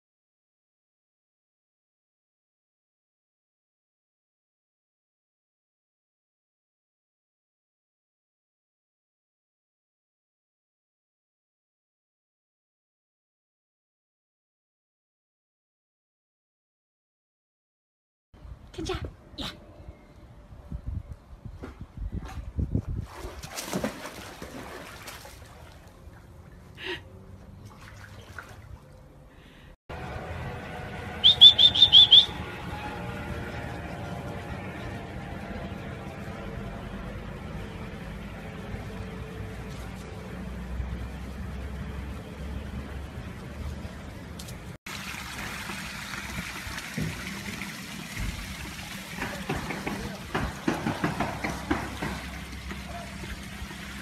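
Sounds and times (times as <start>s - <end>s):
dog splashing into pool: 23.0s - 26.3s, 27.6s - 28.8s
water sloshing: 23.0s - 29.2s
pool water trickling and splashing: 23.0s - 29.3s, 39.6s - 54.0s.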